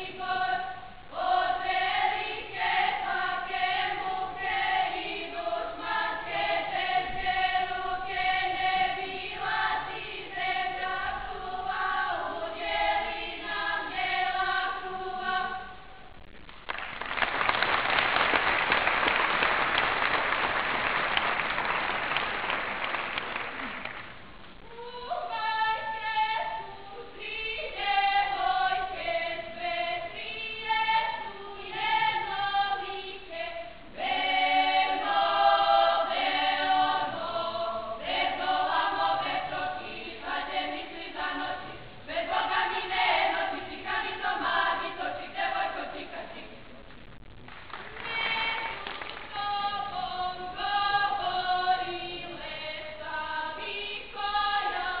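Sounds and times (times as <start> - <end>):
choir singing: 0.0 - 15.9, 24.7 - 46.6, 47.8 - 55.0.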